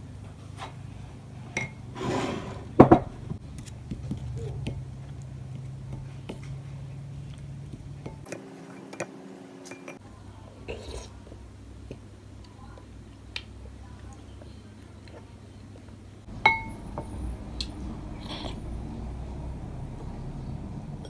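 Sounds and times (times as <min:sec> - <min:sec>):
wooden spoon stirring batter: 0:03.4 - 0:10.0
spoon knocking against glass: 0:16.5 - 0:16.7.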